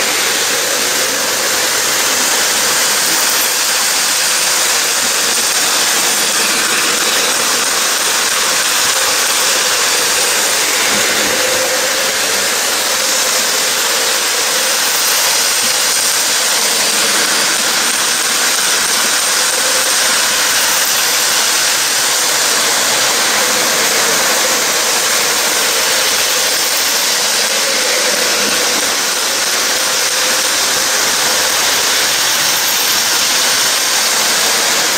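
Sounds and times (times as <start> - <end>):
model trains running on track: 0.0 - 34.9.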